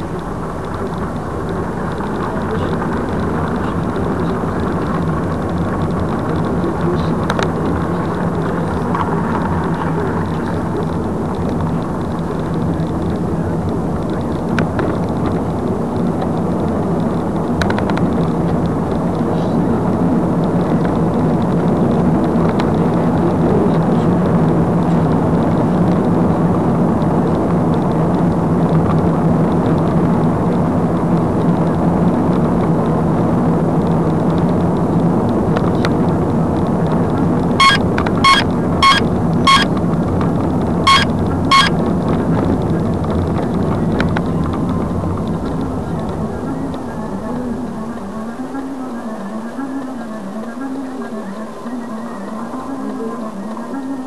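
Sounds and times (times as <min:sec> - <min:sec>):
car engine and road noise: 0:00.0 - 0:51.8
short electronic beeps: 0:37.6 - 0:39.7, 0:40.9 - 0:41.7.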